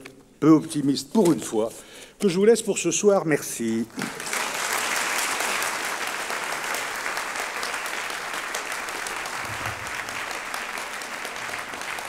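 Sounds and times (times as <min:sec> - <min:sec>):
large audience clapping: 0:03.9 - 0:12.0.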